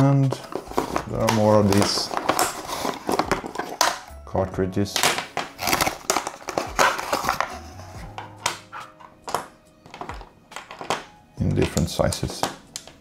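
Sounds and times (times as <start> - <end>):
plastic tubes clicking on table: 9.3 - 13.0.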